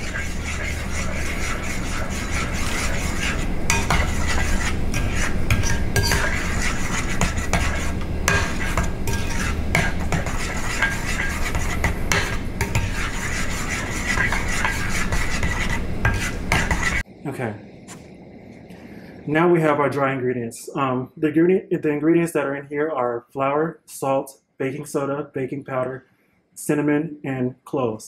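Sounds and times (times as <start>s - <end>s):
spoon scraping batter in bowl: 0.0s - 17.0s.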